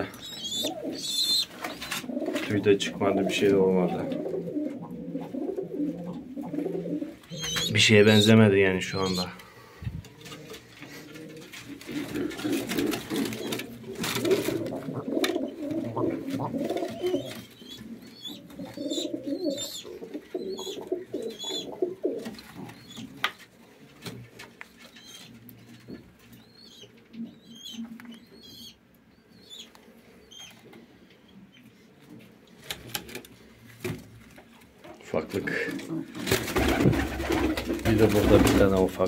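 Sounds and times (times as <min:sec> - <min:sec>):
pigeons cooing: 0:00.0 - 0:23.4, 0:24.9 - 0:30.8.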